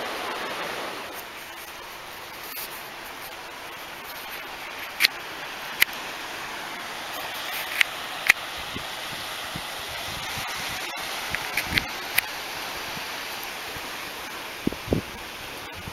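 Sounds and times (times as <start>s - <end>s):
outdoor rushing hiss: 0.0s - 15.9s.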